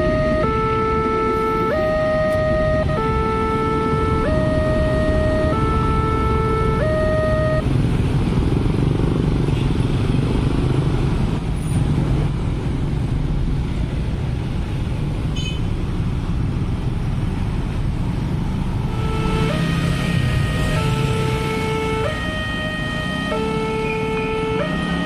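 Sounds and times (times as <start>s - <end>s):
electronic warning tones: 0.0s - 7.6s, 18.9s - 25.0s.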